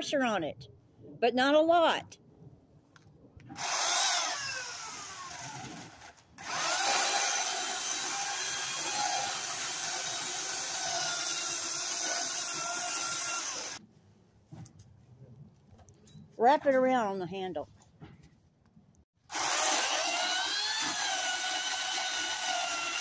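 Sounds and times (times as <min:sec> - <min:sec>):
electric chainsaw cutting wood: 0:03.5 - 0:13.8, 0:19.3 - 0:23.0.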